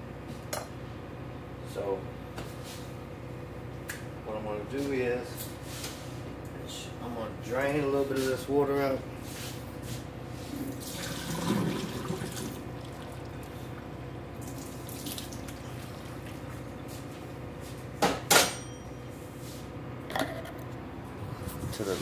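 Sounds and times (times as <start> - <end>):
water pouring into sink: 10.8 - 13.5, 14.4 - 16.4.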